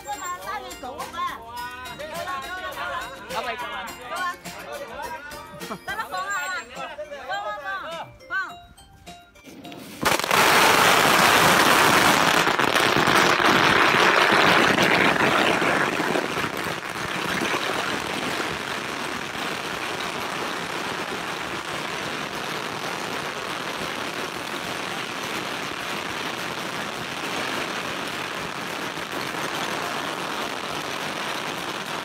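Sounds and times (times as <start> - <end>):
firecrackers crackling: 9.7 - 32.0.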